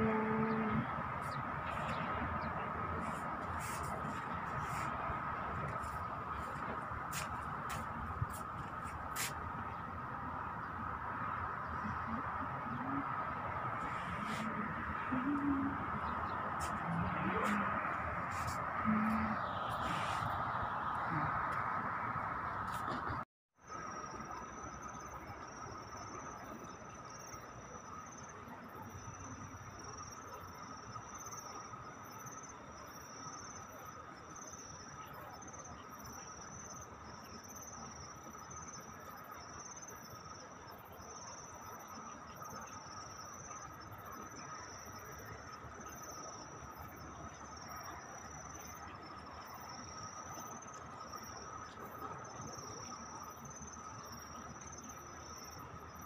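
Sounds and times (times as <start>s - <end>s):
low continuous insect trill: 0.0s - 56.0s
high pulsing insect chirping: 23.7s - 56.0s.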